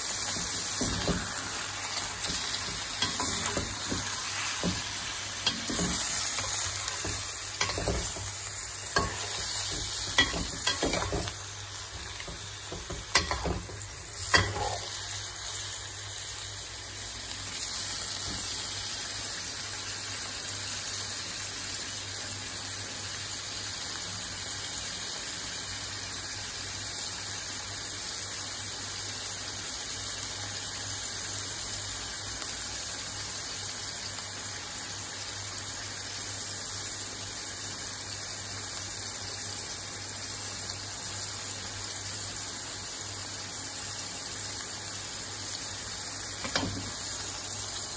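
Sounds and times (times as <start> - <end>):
meat sizzling in oil in a wok: 0.0 - 47.9
spatula scraping a wok: 0.2 - 14.9.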